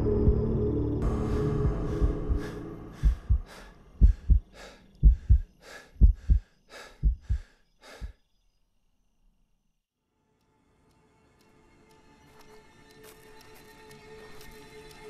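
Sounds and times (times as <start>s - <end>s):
heartbeat thumps: 0.0s - 8.2s
panting breaths: 1.3s - 8.2s.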